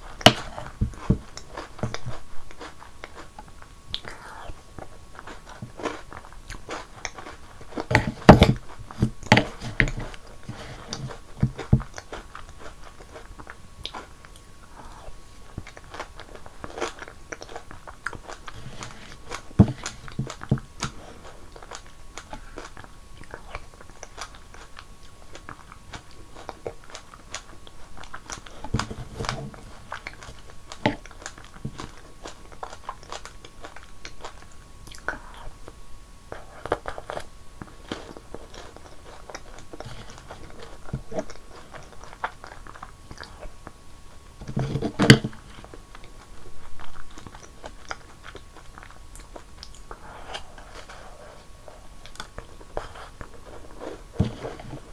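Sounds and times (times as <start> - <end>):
chewing and crunching snacks: 0.0 - 54.9
wet mouth sounds: 33.8 - 35.6.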